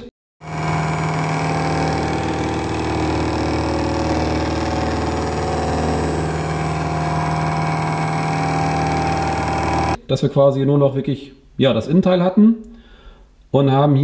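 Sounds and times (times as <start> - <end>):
milling machine cutting steel: 0.4 - 10.0.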